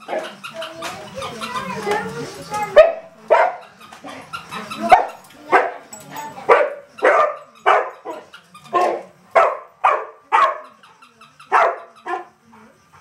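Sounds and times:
dog barking: 2.7 - 3.7, 4.9 - 5.9, 6.5 - 10.8, 11.5 - 12.3.

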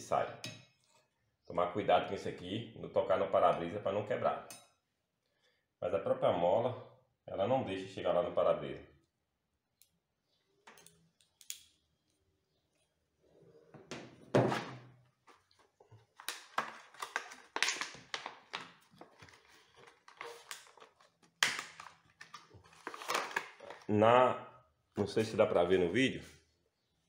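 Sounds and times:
plastic packaging crinkling: 15.3 - 23.9.

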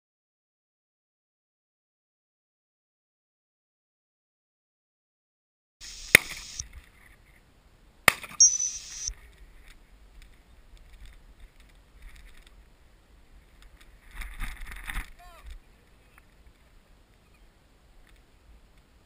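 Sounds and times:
shotgun shots: 6.0 - 6.6.

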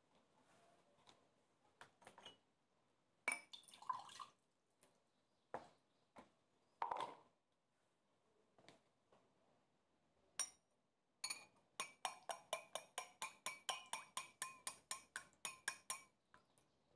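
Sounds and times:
oil pouring into a bowl: 3.5 - 4.4.

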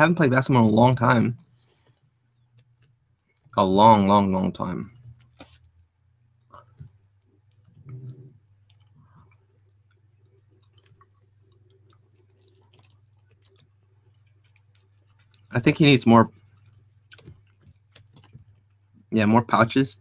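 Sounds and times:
stylus and mouse clicks: 1.4 - 3.6, 5.0 - 18.7.

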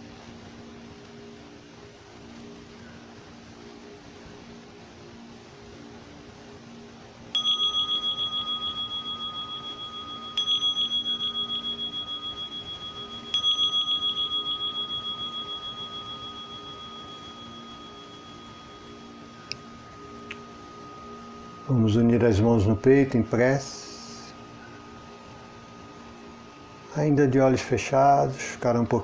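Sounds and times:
meditation bell ringing: 7.3 - 27.6.

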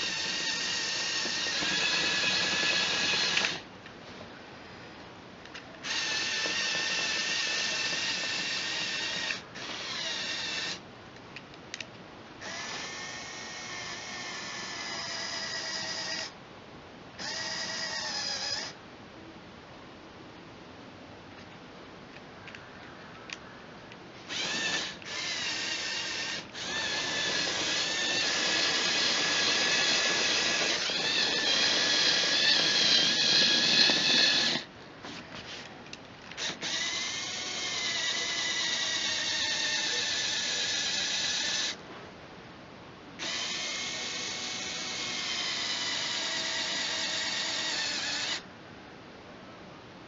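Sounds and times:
small electric motors whining: 0.0 - 3.7, 5.8 - 10.8, 12.4 - 16.4, 17.2 - 18.8, 24.2 - 34.7, 36.3 - 41.8, 43.2 - 48.5.

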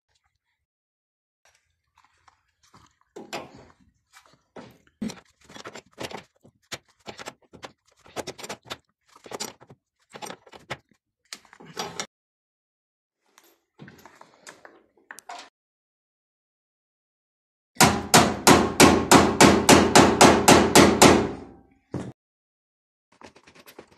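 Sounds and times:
metal and plastic scraping and rattling: 4.7 - 12.1.

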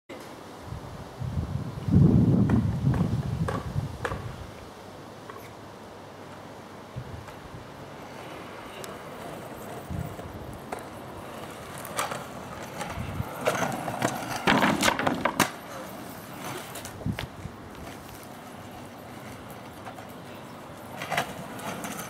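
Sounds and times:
scooter wheels rolling on asphalt: 1.2 - 22.0
scooter deck clacking on ground: 2.4 - 4.3, 8.8 - 22.0.

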